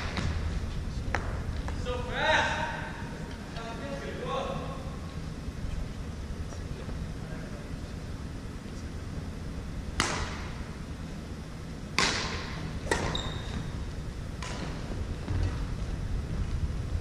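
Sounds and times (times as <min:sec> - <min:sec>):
racket hitting shuttlecock: 0:09.9 - 0:10.7, 0:12.0 - 0:13.7, 0:14.4 - 0:14.9.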